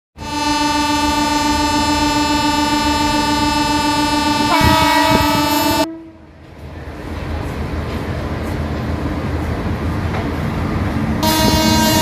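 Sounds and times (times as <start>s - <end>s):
locomotive air horn blast: 0.2s - 6.3s, 11.2s - 12.0s.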